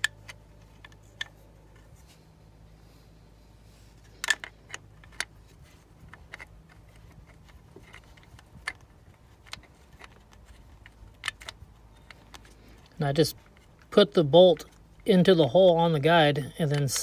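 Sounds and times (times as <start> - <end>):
faint steady low hum: 0.0 - 17.0
light clicks and taps of metal parts: 3.9 - 15.8.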